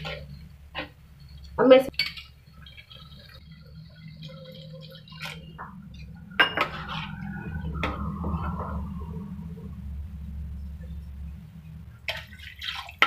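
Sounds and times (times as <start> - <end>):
low steady hum: 0.0 - 13.0
metal spoon clinking on pan: 1.9 - 2.7
liquid sloshing: 2.0 - 9.1, 11.9 - 13.0.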